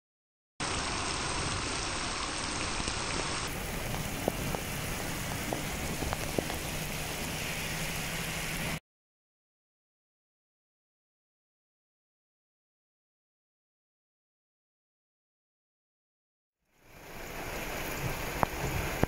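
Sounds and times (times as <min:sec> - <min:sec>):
heavy rain on road: 0:00.6 - 0:08.8, 0:16.7 - 0:19.0.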